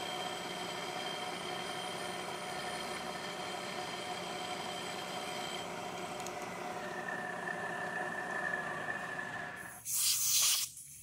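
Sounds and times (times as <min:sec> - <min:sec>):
end mill cutting metal: 0:00.0 - 0:05.8.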